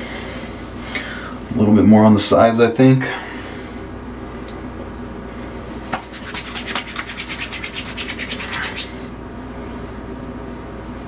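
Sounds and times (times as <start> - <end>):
hands rubbing together: 6.0 - 9.0.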